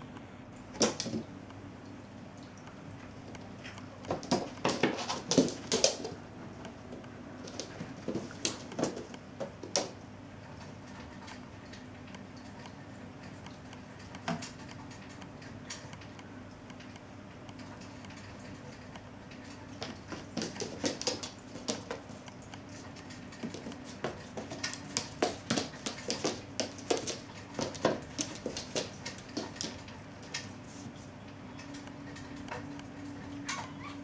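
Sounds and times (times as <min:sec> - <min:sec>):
cat paws tapping on wooden floor: 0:03.3 - 0:10.0, 0:18.8 - 0:33.2.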